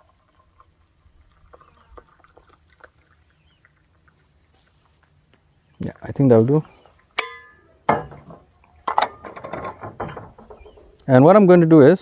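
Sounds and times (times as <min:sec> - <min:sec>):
tea pouring into a mug: 0:00.0 - 0:04.8
crickets trilling: 0:00.0 - 0:12.0.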